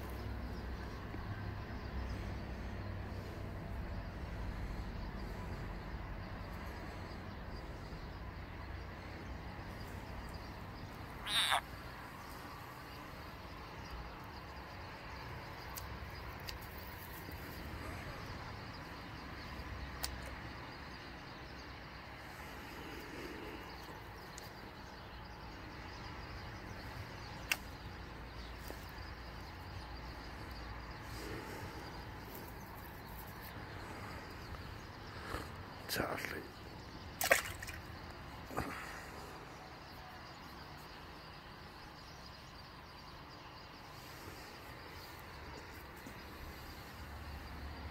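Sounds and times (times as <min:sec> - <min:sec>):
faint outdoor background: 0:00.0 - 0:47.9
frog squeal: 0:11.2 - 0:11.8
light ticks: 0:19.9 - 0:20.4.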